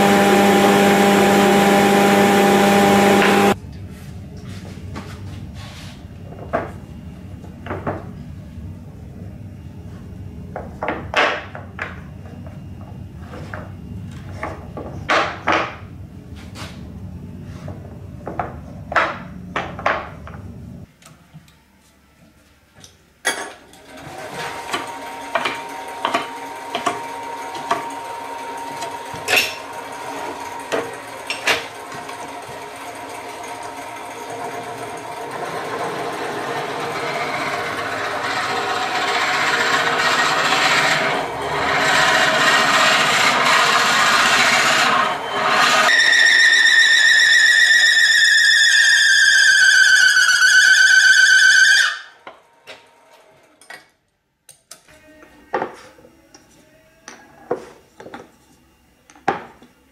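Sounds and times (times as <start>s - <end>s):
wood lathe running: 0.0s - 3.6s, 23.9s - 52.1s
low machine hum: 0.0s - 15.1s, 24.4s - 46.0s.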